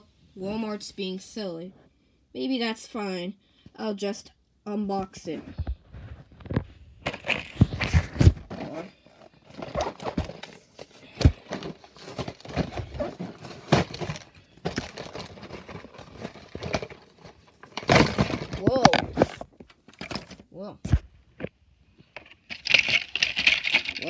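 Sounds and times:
plastic and cardboard crackling: 0:05.7 - 0:21.5, 0:22.1 - 0:24.0.

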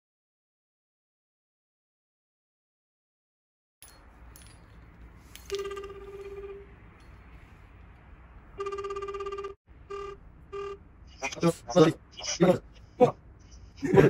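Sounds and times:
phone ringback tone: 0:05.5 - 0:06.8, 0:08.6 - 0:10.8.

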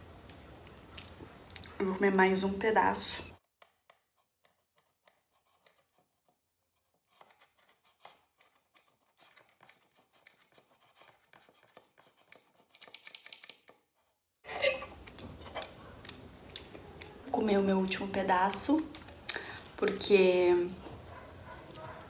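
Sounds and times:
knife cutting pizza crust: 0:03.6 - 0:13.0.

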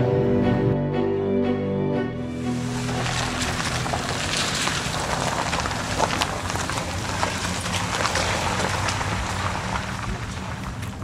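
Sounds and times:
low engine hum: 0:02.0 - 0:11.0
tyres hissing on wet road: 0:02.4 - 0:11.0.

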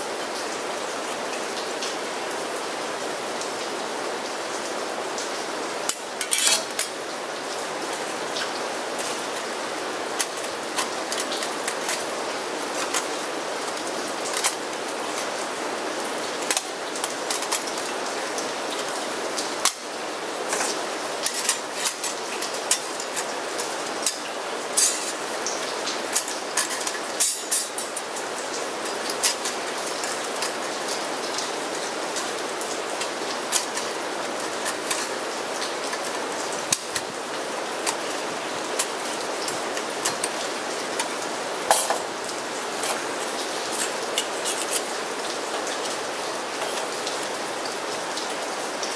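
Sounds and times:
steady rain: 0:00.0 - 0:48.9
metal stove panels clinking: 0:05.9 - 0:06.9, 0:26.1 - 0:28.1, 0:41.7 - 0:42.1.

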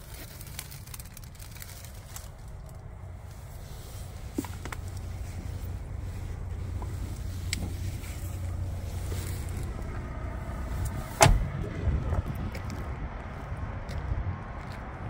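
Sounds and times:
low rumble: 0:00.0 - 0:15.0
truck door slamming: 0:10.9 - 0:11.6.

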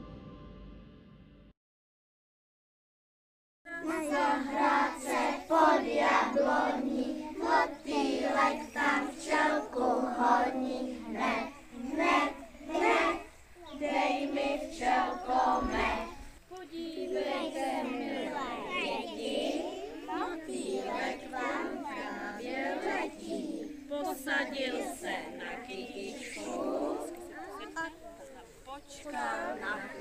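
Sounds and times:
children singing in unison: 0:03.7 - 0:27.7, 0:28.5 - 0:30.0.

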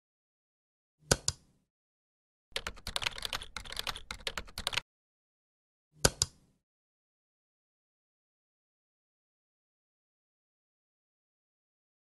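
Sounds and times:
keyboard typing: 0:02.5 - 0:04.8.

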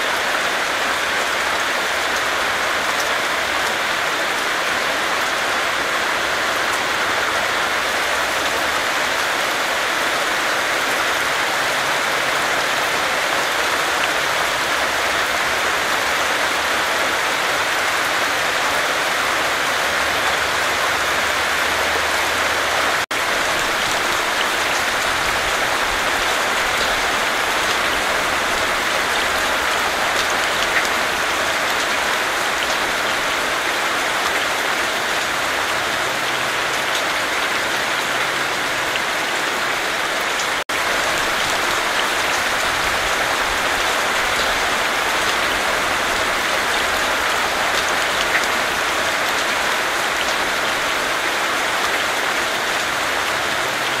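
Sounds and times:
heavy rain falling: 0:00.0 - 0:54.0.

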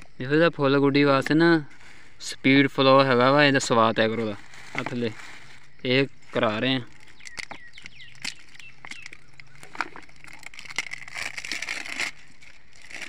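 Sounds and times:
packet and bottle rustling: 0:04.2 - 0:13.0.

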